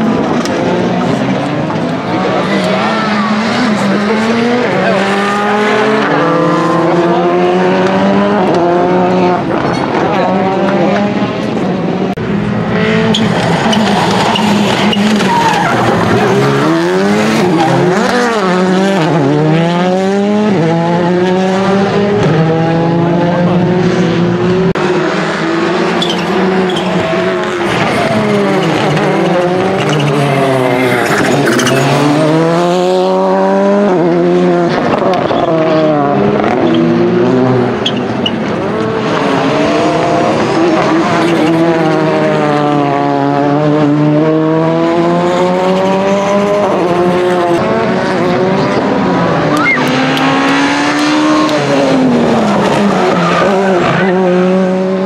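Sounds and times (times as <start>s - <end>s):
rally car engines revving: 0.0s - 55.0s
tyres squealing on tarmac: 13.1s - 16.4s, 26.0s - 27.0s.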